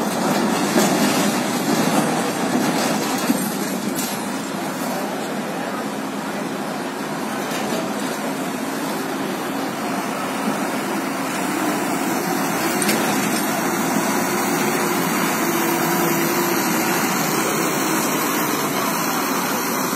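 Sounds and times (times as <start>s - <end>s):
truck and ferry engine noise: 0.0s - 19.9s.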